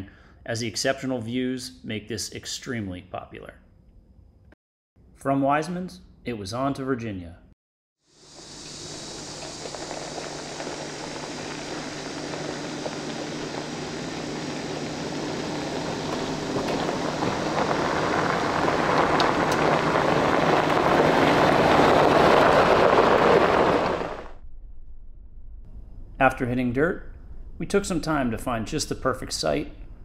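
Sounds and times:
vehicle engine drone: 8.2 - 24.6
road and wind noise: 8.4 - 24.4.

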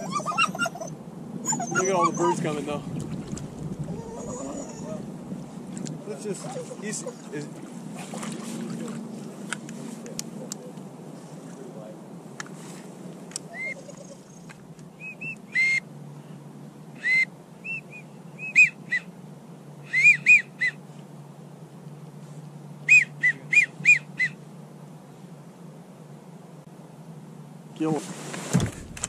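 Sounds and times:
duck whistles: 13.5 - 14.2, 15.0 - 15.8, 17.0 - 19.1, 19.8 - 20.8, 22.9 - 24.4.

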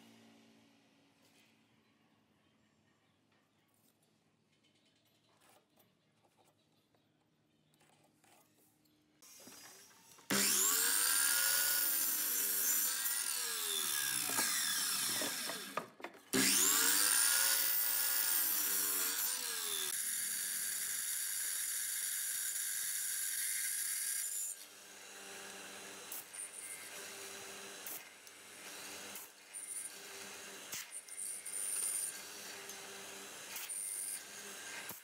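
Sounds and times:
miter saw cutting wood: 9.2 - 35.0.

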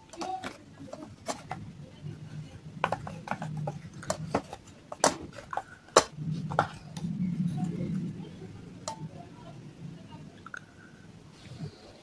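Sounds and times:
paste being stirred: 0.0 - 7.7.

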